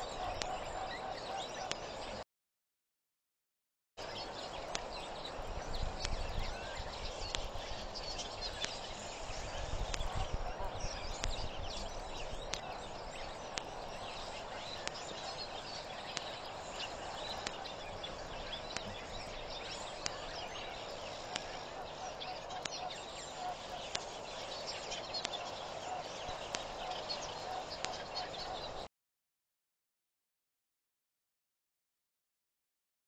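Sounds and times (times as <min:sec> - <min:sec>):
birds chirping and calling: 0:00.0 - 0:02.2, 0:04.0 - 0:28.9
steady outdoor hiss: 0:00.0 - 0:02.2, 0:04.0 - 0:28.9
faint tick: 0:06.0 - 0:06.3, 0:07.2 - 0:07.5, 0:21.2 - 0:21.6, 0:23.8 - 0:24.2, 0:25.0 - 0:25.5, 0:26.3 - 0:28.4.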